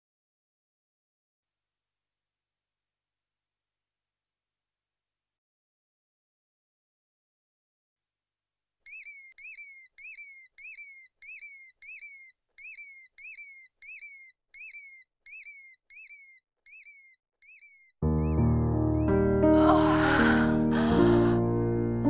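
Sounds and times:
high whistled chirps: 8.9s - 19.4s, 20.5s - 21.7s.

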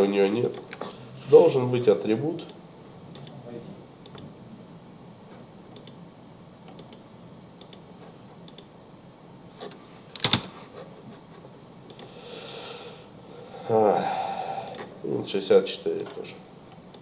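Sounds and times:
computer keyboard clicks: 5.8s - 6.0s, 8.5s - 8.7s
mouse clicks: 6.7s - 7.0s.

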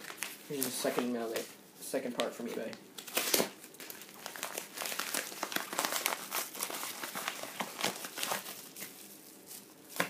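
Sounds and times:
padded mailer tearing and crinkling: 3.0s - 10.0s.

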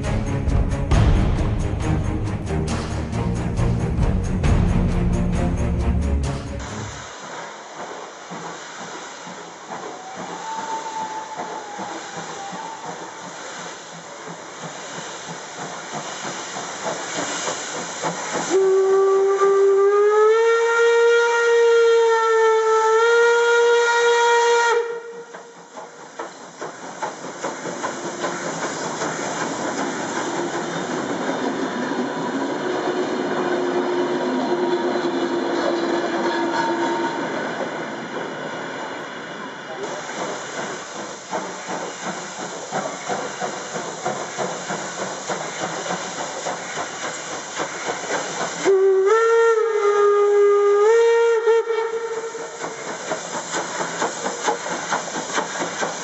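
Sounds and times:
steam locomotive hissing: 0.0s - 56.0s
long steam whistle blast: 9.9s - 13.6s, 18.5s - 25.5s, 32.9s - 37.4s, 48.6s - 52.9s.

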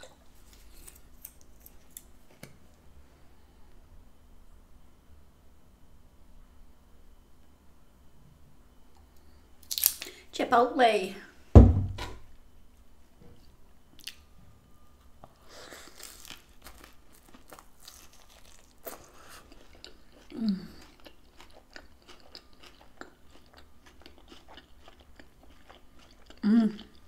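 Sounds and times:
crunchy food chewing: 15.6s - 27.0s
person humming: 20.3s - 20.8s, 26.4s - 26.9s.

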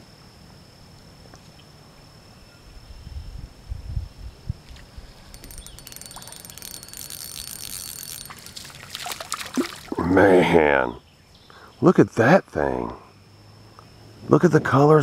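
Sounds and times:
fish splashing at the surface: 8.2s - 10.0s.

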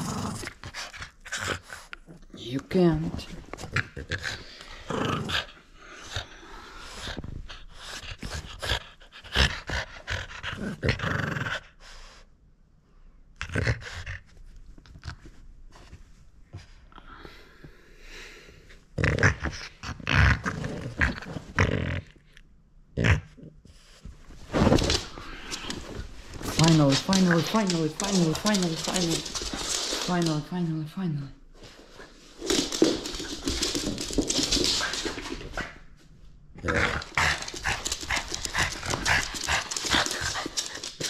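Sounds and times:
dog growling: 0.0s - 2.2s, 3.6s - 7.0s, 8.4s - 11.7s, 19.0s - 22.3s, 36.6s - 40.7s.

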